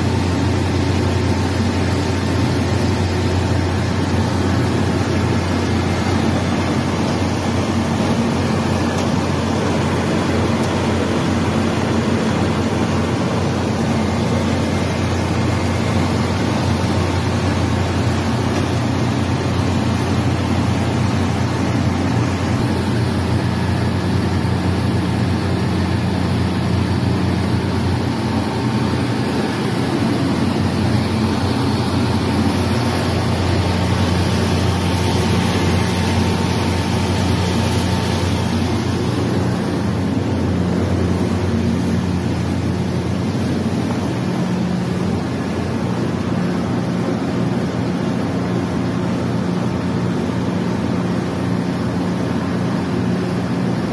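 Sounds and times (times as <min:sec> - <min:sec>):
rice mill machine droning: 0:00.0 - 0:53.9
low hum: 0:21.1 - 0:47.8.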